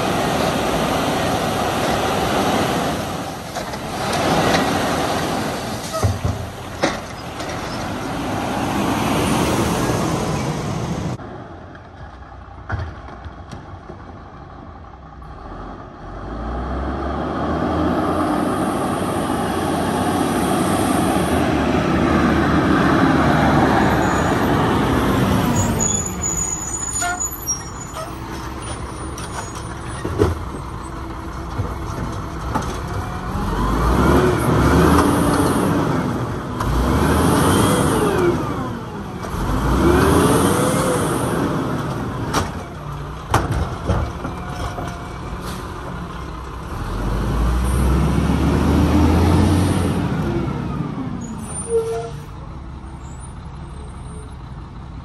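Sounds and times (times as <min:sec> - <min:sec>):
side-loader arm lifting cart: 0:00.0 - 0:55.0
diesel truck engine revving: 0:15.1 - 0:29.1, 0:32.9 - 0:44.2, 0:45.3 - 0:54.8.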